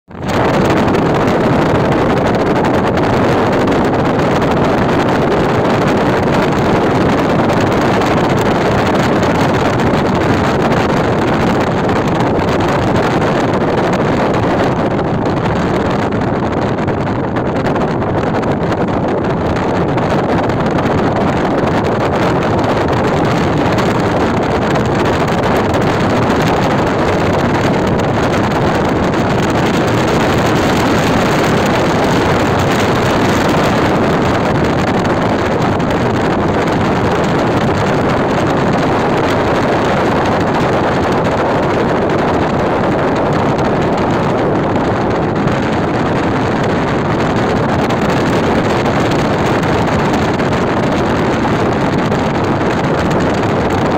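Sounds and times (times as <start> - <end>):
wind buffeting microphone: 0.1 - 53.9
wind rushing: 0.1 - 53.9
car road noise: 0.2 - 53.9.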